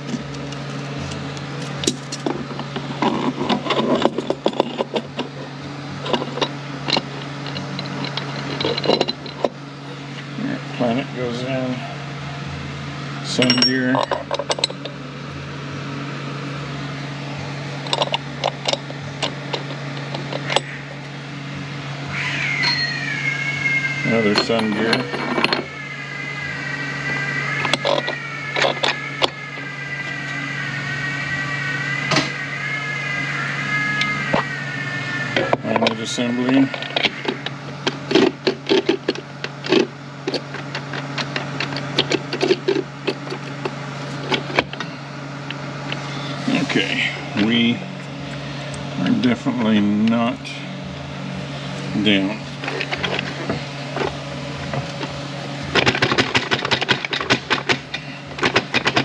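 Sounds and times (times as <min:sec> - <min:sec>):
steady low hum: 0:00.0 - 0:59.0
metal gear parts clinking: 0:06.0 - 0:09.5, 0:13.3 - 0:14.9, 0:22.5 - 0:23.0, 0:24.0 - 0:25.8.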